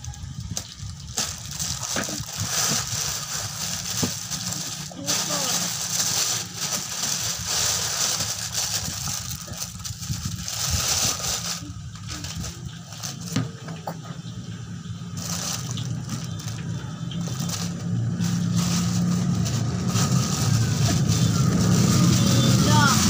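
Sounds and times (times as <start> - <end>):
plastic bag rustling: 0.0 - 13.7, 15.1 - 23.0
steady low hum: 0.0 - 23.0.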